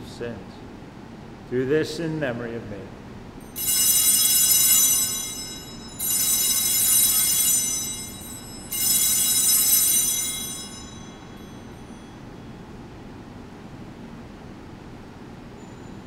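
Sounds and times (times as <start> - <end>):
altar bells ringing: 3.4 - 13.0, 15.6 - 16.0.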